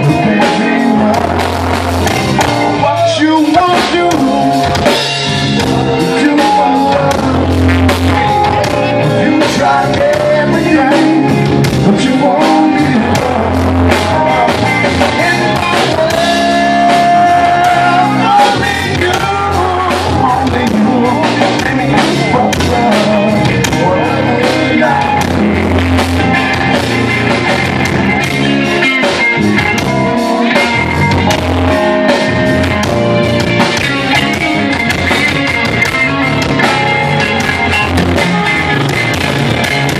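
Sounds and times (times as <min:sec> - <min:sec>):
blues-rock band playing: 0:00.0 - 0:39.9
bending electric guitar note: 0:22.0 - 0:39.9.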